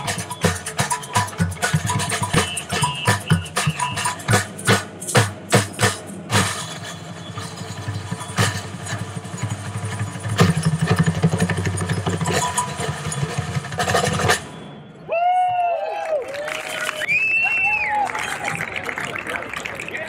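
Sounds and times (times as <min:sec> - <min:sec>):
rapid drum roll: 0:00.0 - 0:14.6
samba drums: 0:00.0 - 0:14.8.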